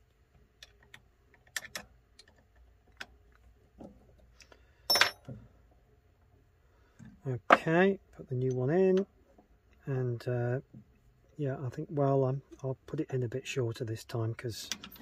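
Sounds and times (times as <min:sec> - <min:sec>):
small metallic clicks: 0:00.5 - 0:03.5.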